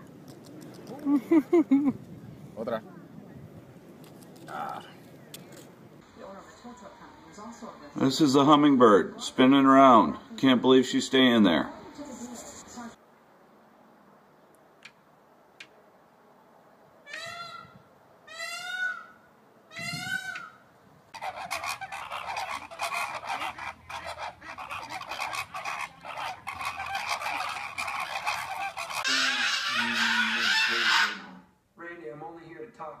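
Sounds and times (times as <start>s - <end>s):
peacock calling: 17.0s - 31.5s
flamingos honking and chattering: 19.8s - 31.4s.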